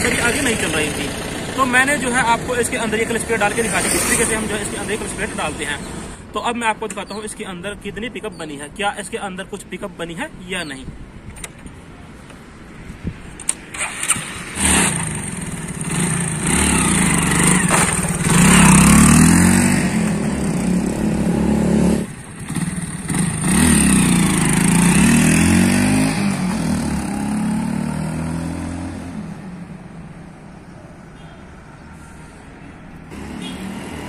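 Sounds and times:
motorcycle engine revving: 13.7s - 29.4s, 33.1s - 34.0s.

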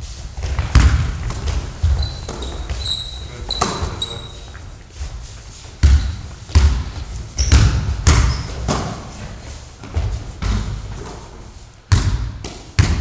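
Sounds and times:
basketball bouncing on hard floor: 0.4s - 4.0s, 5.8s - 9.0s, 9.8s - 11.2s, 11.9s - 13.0s.

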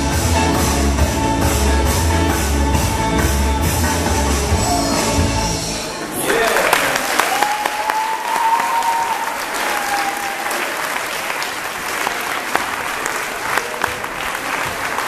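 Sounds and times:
audience applauding: 6.0s - 15.0s.

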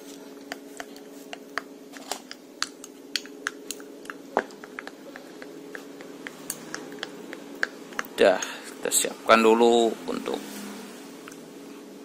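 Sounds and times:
spoon stirring in ceramic mug: 0.4s - 8.5s.

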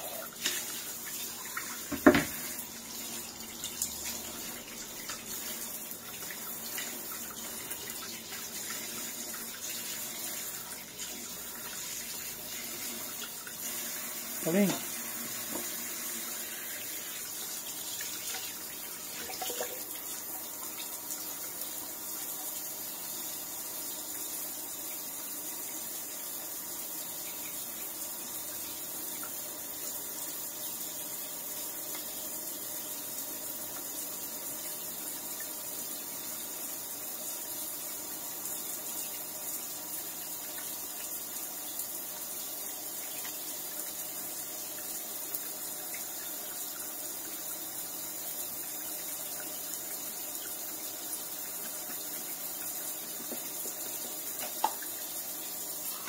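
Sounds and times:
tap water running into sink: 0.0s - 56.0s.

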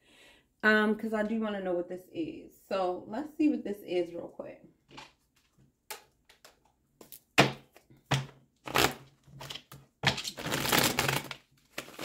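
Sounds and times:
cards shuffling: 5.0s - 12.0s.

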